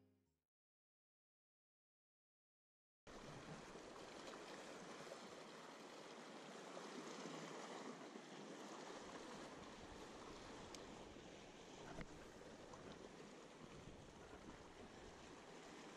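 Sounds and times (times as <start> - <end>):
sea water washing against rocks: 3.2 - 15.9.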